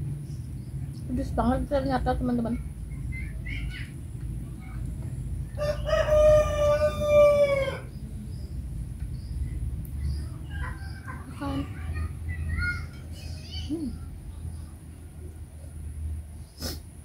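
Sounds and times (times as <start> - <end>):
rooster crowing: 5.5 - 8.0, 10.4 - 11.4.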